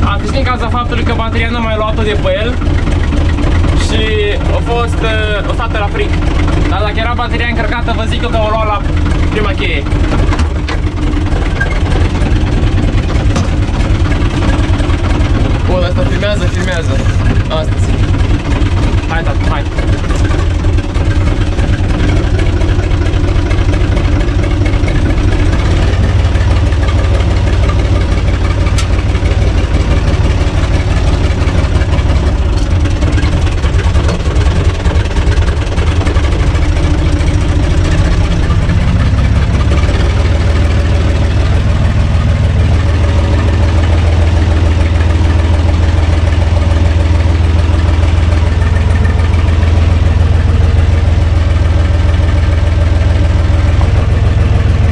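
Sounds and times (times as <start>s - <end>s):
tractor diesel engine running: 0.0s - 54.9s.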